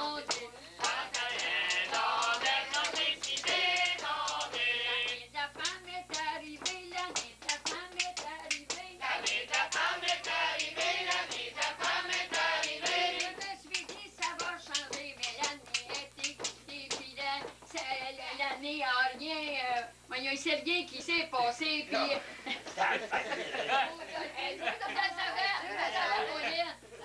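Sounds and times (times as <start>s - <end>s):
singing: 0.0s - 22.3s
hands clapping: 0.2s - 17.9s.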